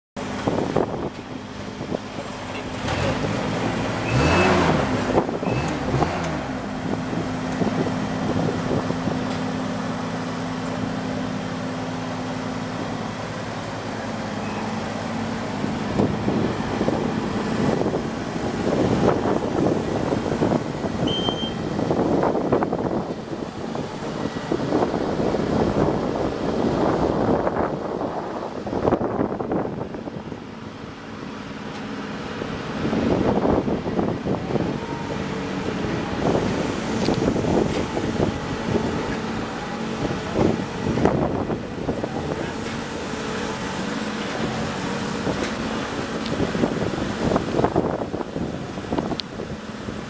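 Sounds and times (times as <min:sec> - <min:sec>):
scissor lift engine running: 0:00.2 - 0:28.7, 0:29.3 - 0:50.0
short high beeps: 0:21.0 - 0:21.6.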